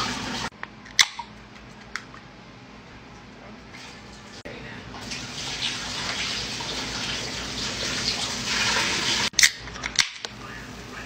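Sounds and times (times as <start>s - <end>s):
can pull tab snapping open: 0.6s - 2.2s
liquid pouring and splashing: 5.0s - 9.3s.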